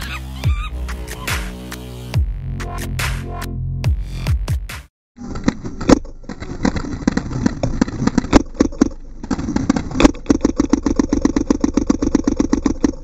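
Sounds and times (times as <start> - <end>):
electronic dance music: 0.0 - 4.9.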